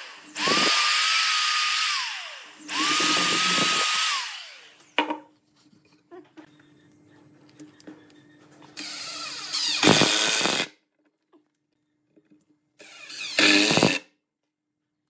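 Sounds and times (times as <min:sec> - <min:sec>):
cordless drill driving screws: 0:00.0 - 0:04.8, 0:08.8 - 0:10.7, 0:12.8 - 0:14.1.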